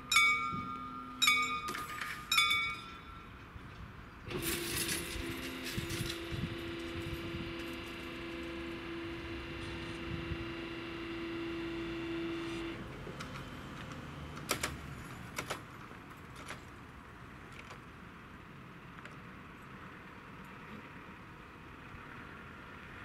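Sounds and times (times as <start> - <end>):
level crossing barrier motor humming: 0.0 - 16.8
outdoor background: 0.0 - 23.0.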